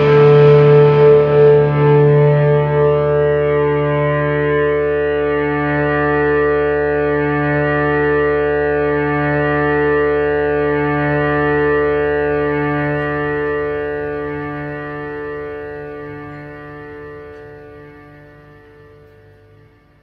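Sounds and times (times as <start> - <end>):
distorted electric guitar chord: 0.0 - 20.0
keyboard drone: 0.0 - 20.0.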